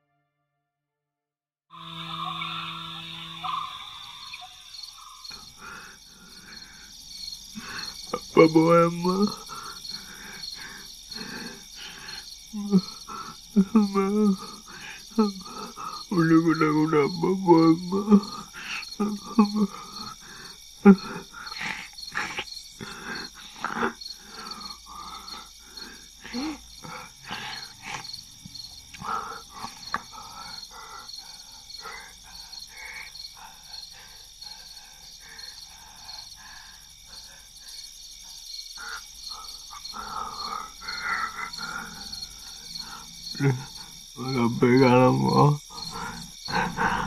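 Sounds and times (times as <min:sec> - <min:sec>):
crickets chirping: 0:01.7 - 0:47.0
person grunting or sobbing: 0:07.6 - 0:28.0, 0:39.8 - 0:47.0.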